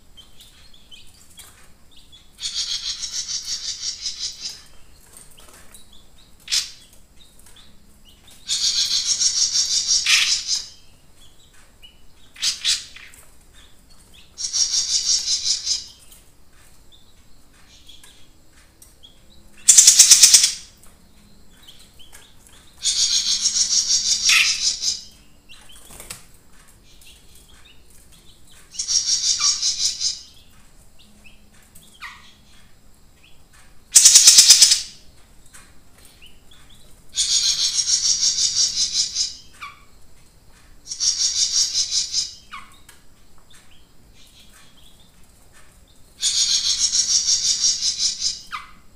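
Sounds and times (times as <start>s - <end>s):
songbird rapid trilling: 19.6s - 20.7s, 22.8s - 25.1s, 33.9s - 35.0s.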